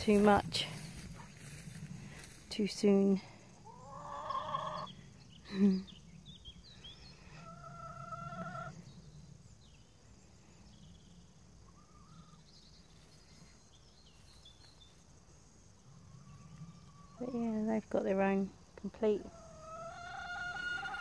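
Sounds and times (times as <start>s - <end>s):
chickens calling: 0.0s - 2.4s, 3.5s - 9.5s, 11.2s - 13.6s, 15.6s - 17.7s, 18.9s - 21.0s.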